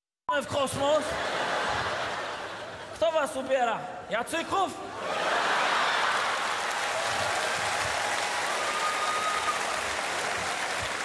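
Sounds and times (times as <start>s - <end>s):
audience laughter: 1.0s - 3.0s
audience applauding: 5.1s - 11.0s.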